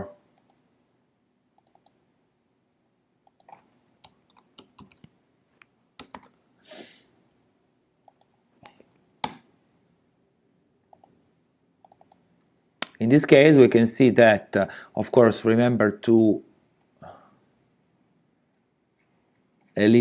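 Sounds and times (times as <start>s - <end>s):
computer keyboard keystrokes: 1.6s - 2.0s, 3.3s - 5.1s, 6.0s - 6.4s, 10.9s - 11.1s, 11.8s - 12.2s
mouse clicks: 1.6s - 2.0s, 8.1s - 9.5s, 10.9s - 11.2s, 11.8s - 12.2s.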